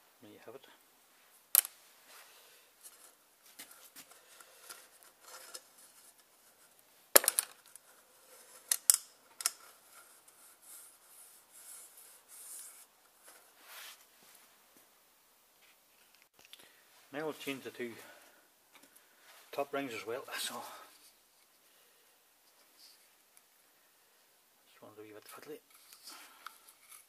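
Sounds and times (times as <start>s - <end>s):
hands rubbing and scraping plastic: 25.3s - 27.0s.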